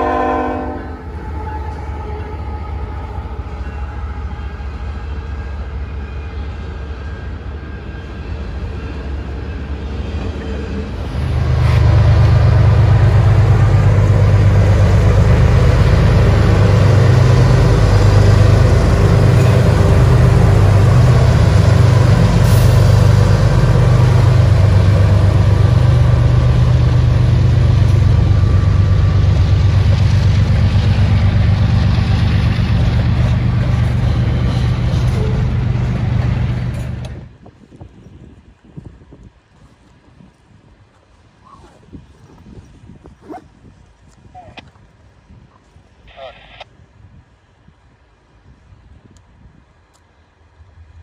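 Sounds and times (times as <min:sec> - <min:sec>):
diesel locomotives passing: 0:00.0 - 0:39.4.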